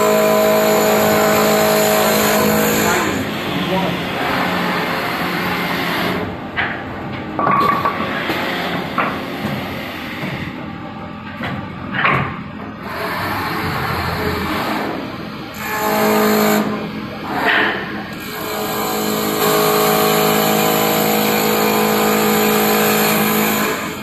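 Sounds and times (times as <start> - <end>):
wood lathe cutting: 0.0 - 6.2, 15.5 - 17.5, 18.2 - 24.0
machine knocking and clunking: 6.5 - 15.0.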